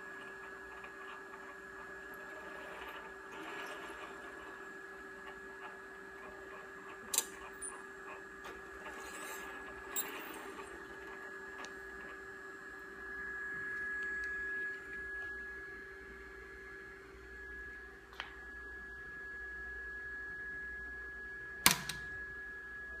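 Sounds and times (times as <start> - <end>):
high-pitched electronic whine: 0.0 - 23.0
low electronic hum: 0.0 - 23.0
sharp click: 21.6 - 22.1
small click: 21.6 - 22.1.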